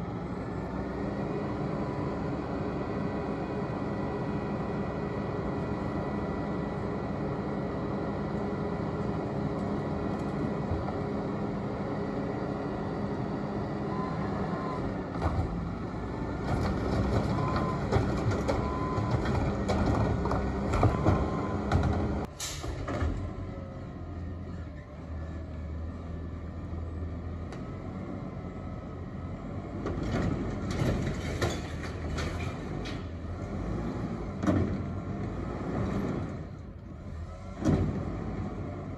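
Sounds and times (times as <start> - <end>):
garbage truck engine running: 0.0 - 38.9
air brake hiss: 22.3 - 22.8
recycling clattering: 29.8 - 33.3.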